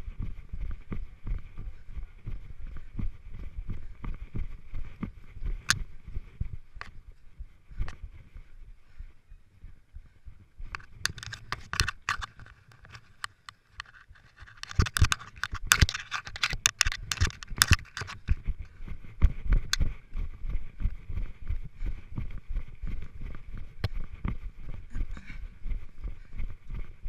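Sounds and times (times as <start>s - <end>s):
footsteps running on grass: 16.9s - 27.0s.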